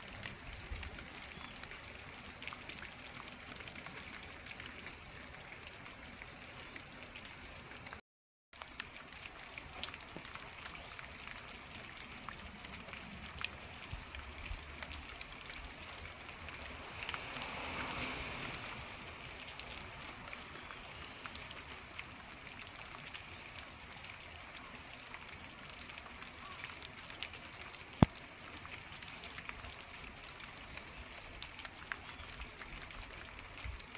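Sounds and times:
steady outdoor hiss: 0:09.1 - 0:33.9.

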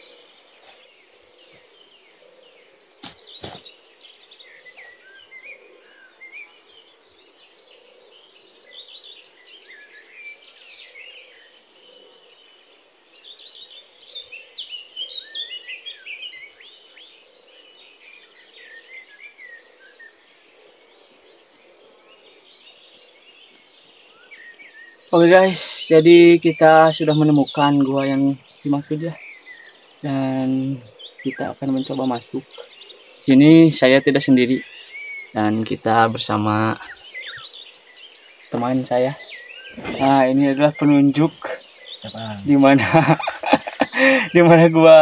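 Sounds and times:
birds calling: 0:00.0 - 0:45.0
high insect drone: 0:00.0 - 0:45.0
sharp click: 0:03.0 - 0:03.6.

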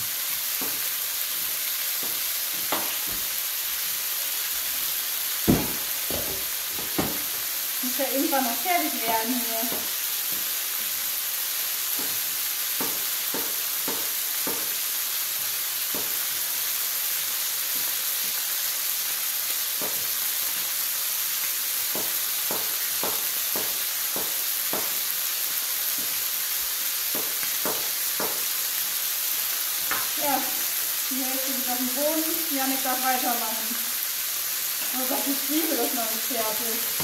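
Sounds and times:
food sizzling in a pan: 0:00.0 - 0:37.0
utensil knocking against pan: 0:05.5 - 0:07.2, 0:21.9 - 0:25.0, 0:27.1 - 0:28.4.

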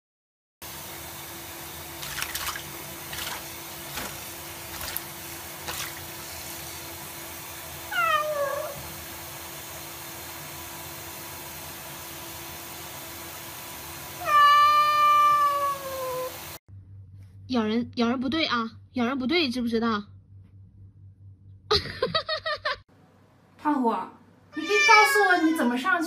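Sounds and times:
tap water running into sink: 0:01.9 - 0:06.6
small water splashes: 0:02.0 - 0:06.2
cat meowing: 0:07.9 - 0:08.8, 0:14.2 - 0:16.4, 0:24.5 - 0:26.0.

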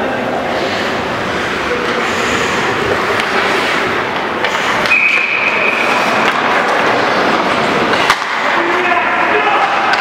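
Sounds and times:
hockey sticks and puck knocking: 0:03.1 - 0:03.7, 0:04.4 - 0:10.0
whistle tone: 0:04.9 - 0:06.0.

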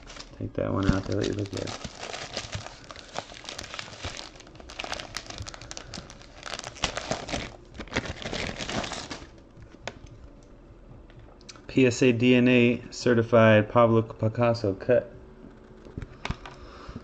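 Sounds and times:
tissue paper crinkling: 0:00.0 - 0:09.4.

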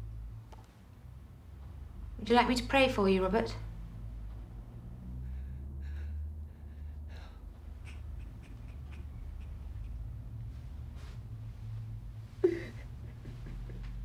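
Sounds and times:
steady low hum: 0:00.0 - 0:14.0
faint breathing: 0:04.8 - 0:12.9.

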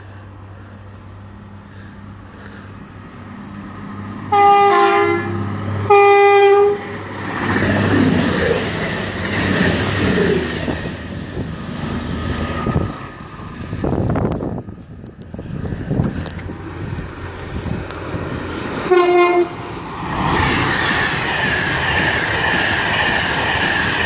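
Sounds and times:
train rushing through station: 0:00.0 - 0:24.0
train horn blasts: 0:04.3 - 0:07.0, 0:18.9 - 0:19.6.

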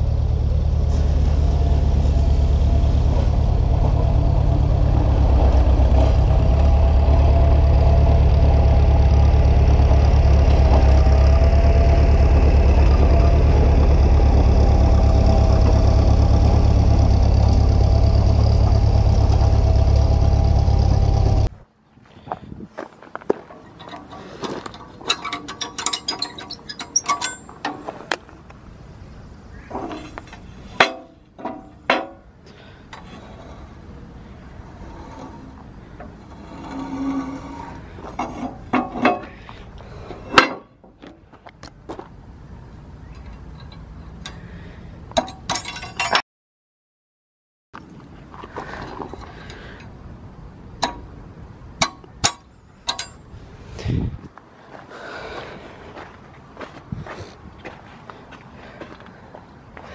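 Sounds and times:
footsteps on gravel: 0:22.0 - 0:24.8, 0:41.0 - 0:42.2, 0:54.3 - 0:59.9
ringing metal clanks: 0:23.7 - 0:27.9, 0:29.7 - 0:32.3, 0:45.2 - 0:46.2, 0:51.8 - 0:53.3
metal pin clinking and rattling: 0:24.7 - 0:27.6.

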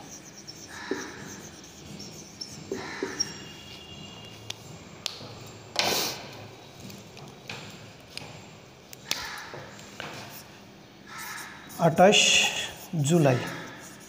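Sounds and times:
whiteboard marker strokes: 0:00.0 - 0:05.2, 0:11.1 - 0:14.0.

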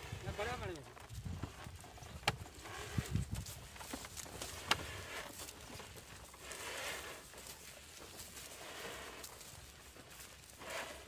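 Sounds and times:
hooves shuffling on straw: 0:00.0 - 0:11.0.

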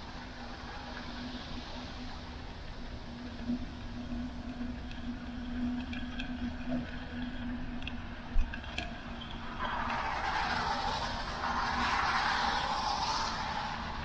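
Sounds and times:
car tyres hissing on wet road: 0:00.0 - 0:04.1, 0:09.3 - 0:14.0
bicycle tyre hum: 0:00.0 - 0:14.0
low wind rumble: 0:00.0 - 0:14.0.

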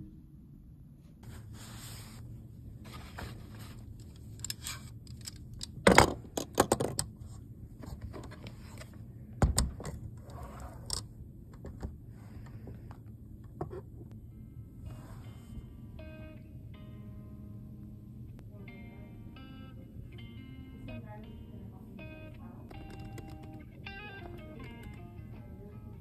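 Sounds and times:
handling and scraping: 0:01.2 - 0:05.5, 0:07.1 - 0:09.1, 0:09.9 - 0:11.1.

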